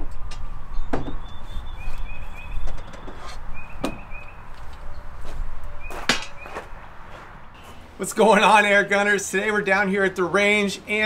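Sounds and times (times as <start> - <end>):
bird chirps: 0.7 - 5.1, 5.7 - 6.8, 7.6 - 8.0.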